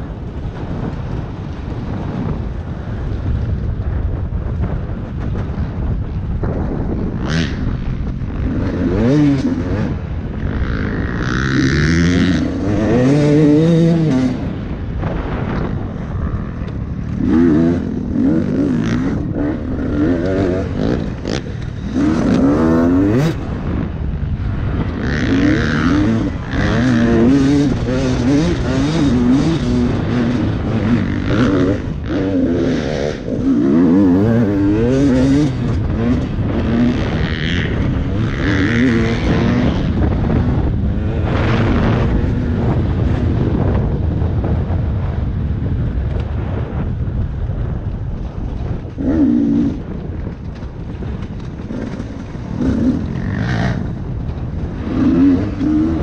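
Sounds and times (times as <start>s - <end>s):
dirt bike engine revving: 6.5s - 43.8s, 48.8s - 56.0s.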